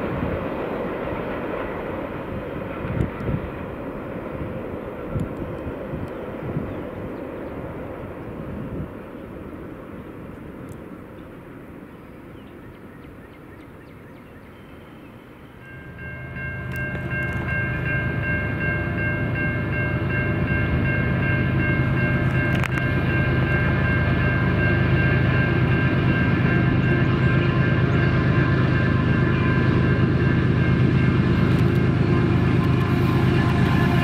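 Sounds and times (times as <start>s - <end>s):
locomotive air horn chord: 15.6s - 34.0s
locomotive engine rumble: 15.6s - 34.0s.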